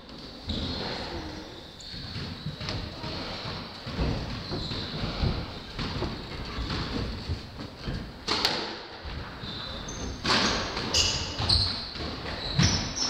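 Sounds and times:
squash ball hitting wall: 8.3s - 8.8s.

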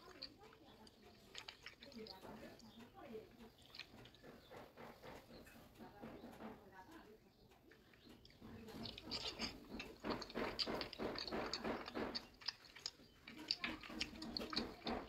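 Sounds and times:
monkey crunching cucumber: 0.0s - 5.5s, 7.6s - 15.0s.

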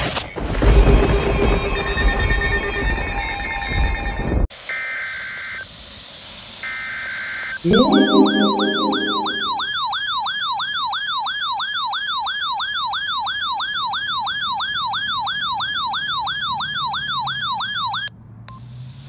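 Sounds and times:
electronic siren alarm sweeping down: 7.7s - 9.8s.

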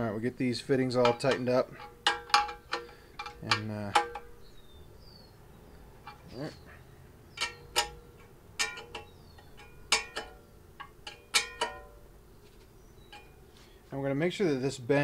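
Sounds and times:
wrench clinking on metal fittings: 7.3s - 12.0s.

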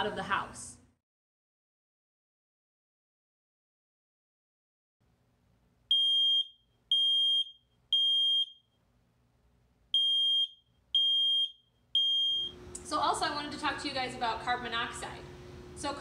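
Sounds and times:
smoke detector alarm beeps: 5.9s - 8.8s, 10.0s - 12.6s.

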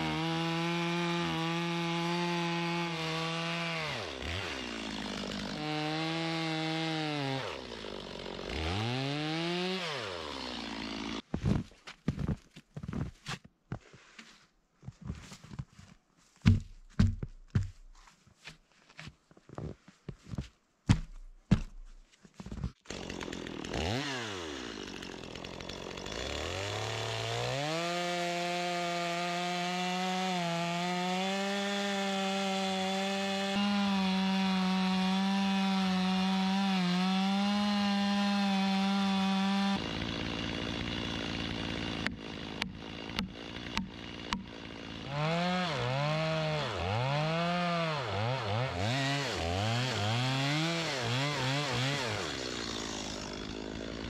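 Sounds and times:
chainsaw revving: 0.0s - 11.2s, 22.9s - 54.0s
chainsaw cutting log: 0.0s - 11.7s, 16.4s - 18.0s, 20.9s - 54.0s.

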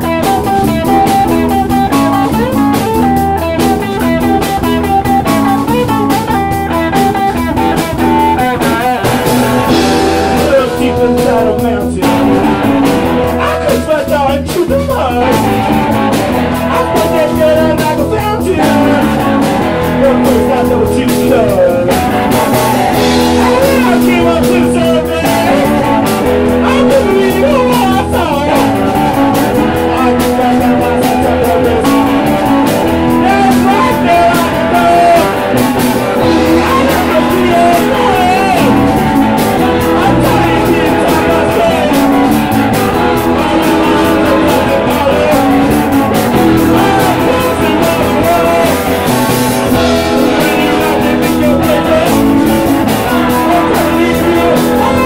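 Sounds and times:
bass guitar: 0.0s - 55.0s
drum kit: 0.0s - 55.0s
electric guitar: 0.0s - 55.0s
person singing: 0.0s - 55.0s.

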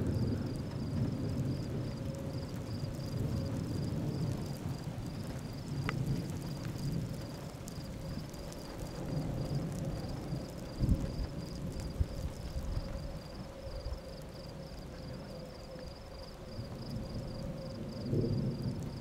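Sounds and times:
distant thunder rumbling: 0.0s - 19.0s
wind: 0.0s - 19.0s.

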